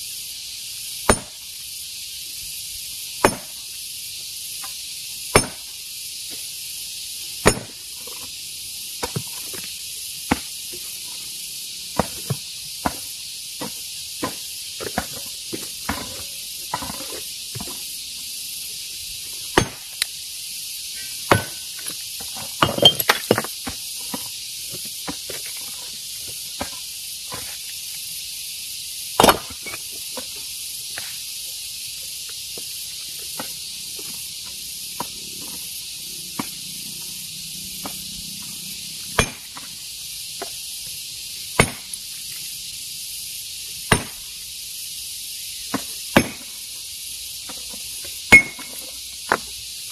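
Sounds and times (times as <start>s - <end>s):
steady high hiss: 0.0s - 49.9s
hammer striking stone: 1.1s - 1.4s, 3.2s - 3.6s, 5.3s - 5.7s, 7.4s - 7.8s, 19.6s - 19.9s, 21.3s - 21.6s, 29.2s - 29.5s, 39.2s - 39.5s, 41.6s - 41.9s, 43.9s - 44.2s, 45.7s - 46.4s, 48.3s - 48.7s.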